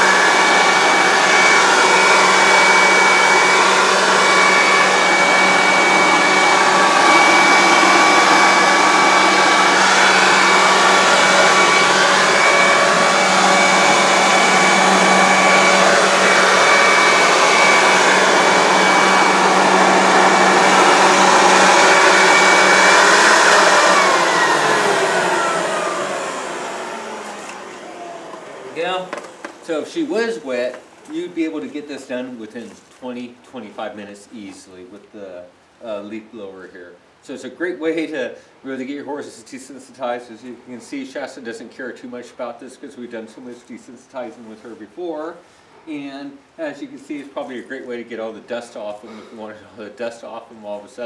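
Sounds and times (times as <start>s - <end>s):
leaf blower running: 0.0s - 30.4s
leaf blower winding down: 0.0s - 31.2s.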